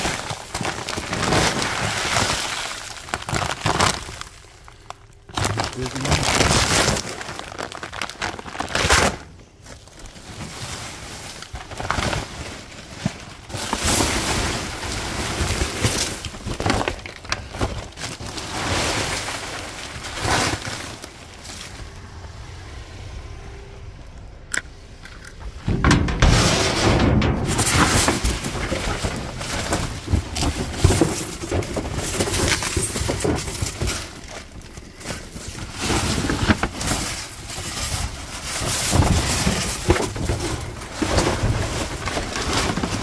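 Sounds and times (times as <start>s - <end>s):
feed bags rustling: 0.0s - 43.0s
loud knocks: 25.5s - 28.2s.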